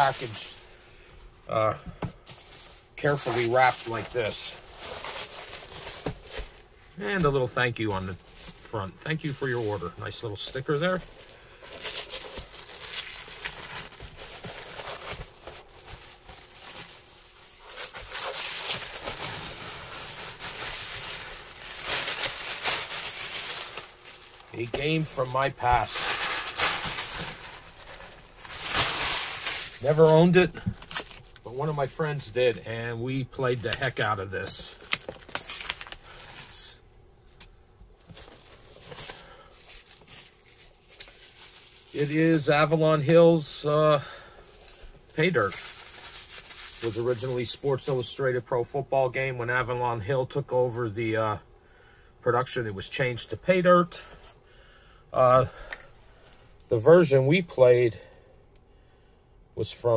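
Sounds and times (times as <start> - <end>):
packing paper crinkling: 0.0 - 0.7, 2.2 - 32.6, 33.4 - 36.8, 38.0 - 42.8, 44.4 - 48.2
scissors cutting shrink wrap: 34.8 - 36.0.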